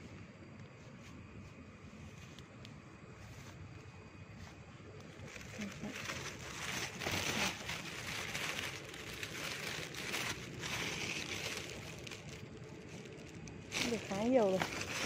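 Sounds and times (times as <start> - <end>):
plastic bag crinkling: 5.2 - 15.0.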